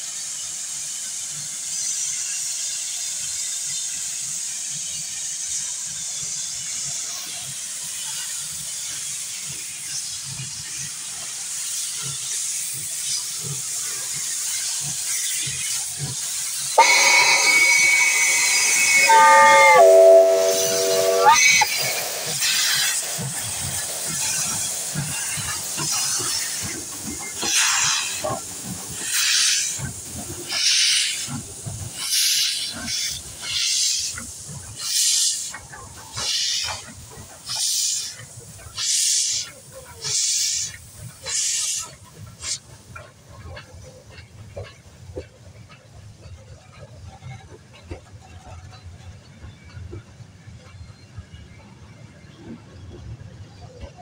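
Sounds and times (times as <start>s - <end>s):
steam locomotive hissing: 0.0s - 54.0s
bursts of steam: 11.6s - 29.8s
multi-tone steam whistle: 16.8s - 22.1s.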